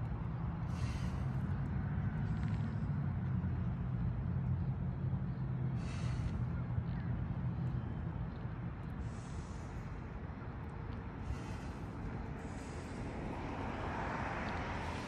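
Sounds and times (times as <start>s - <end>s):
steady low rumble: 0.0s - 15.0s
person breathing hard: 0.7s - 1.5s, 11.2s - 13.6s.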